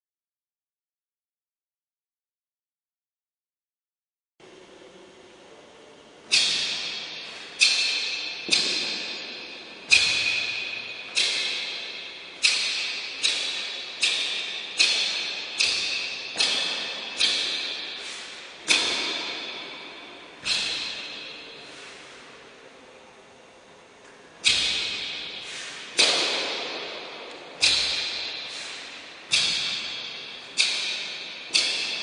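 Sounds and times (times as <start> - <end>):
cloth snaps echoing: 6.3 - 21.5, 24.0 - 32.0.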